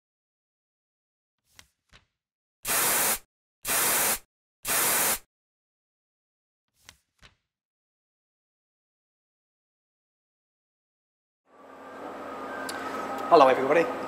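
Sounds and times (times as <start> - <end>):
spray-paint hiss: 2.7 - 5.2.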